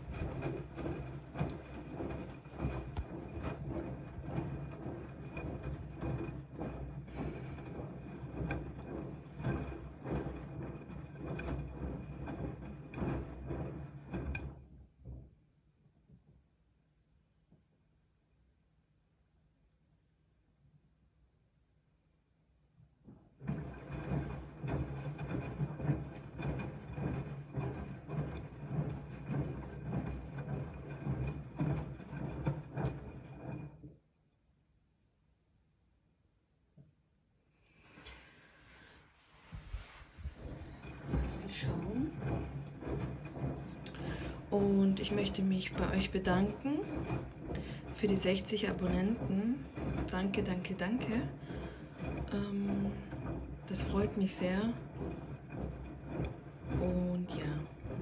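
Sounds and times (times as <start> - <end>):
washing machine sloshing laundry: 0.0 - 15.3, 23.2 - 33.9, 37.7 - 58.0
washing machine low hum: 0.0 - 16.4, 22.9 - 34.1, 37.7 - 58.0.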